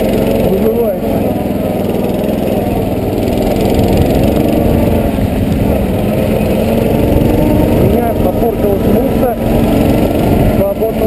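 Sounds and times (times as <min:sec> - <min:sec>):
vehicle engine running under load: 0:00.0 - 0:11.0
wind rumble on microphone: 0:02.8 - 0:11.0.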